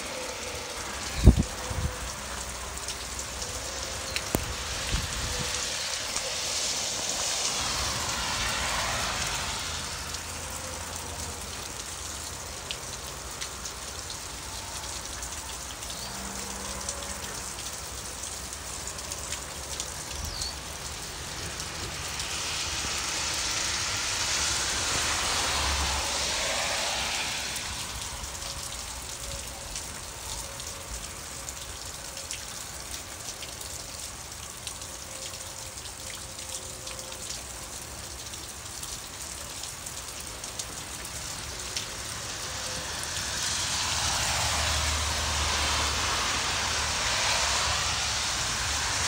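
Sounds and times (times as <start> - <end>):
steady rain falling: 0.0 - 49.0.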